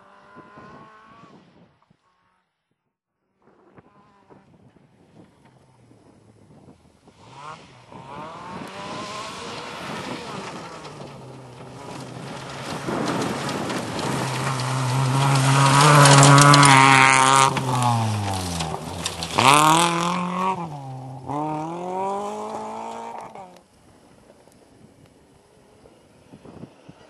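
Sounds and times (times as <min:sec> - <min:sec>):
rally car engine passing: 0:03.8 - 0:23.7
gravel spraying: 0:07.4 - 0:27.0.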